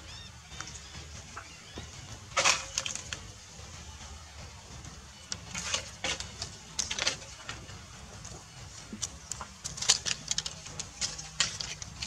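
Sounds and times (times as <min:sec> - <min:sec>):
monkeys scuffling: 0:00.0 - 0:12.0.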